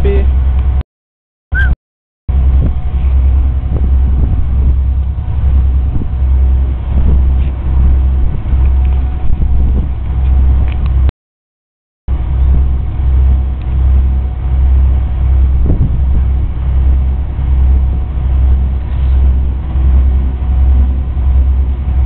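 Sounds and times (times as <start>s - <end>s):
boat engine drone: 0.0s - 0.8s, 1.6s - 11.1s, 12.1s - 22.0s.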